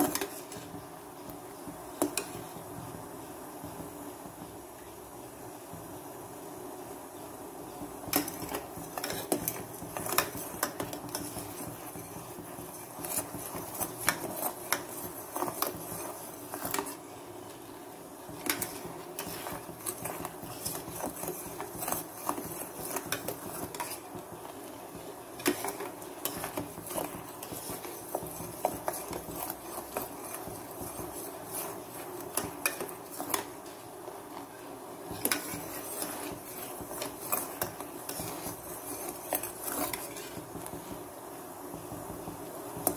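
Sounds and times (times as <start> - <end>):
spoon scraping a steel pan: 8.1 - 17.0, 18.4 - 24.1, 25.4 - 33.6, 35.1 - 40.4.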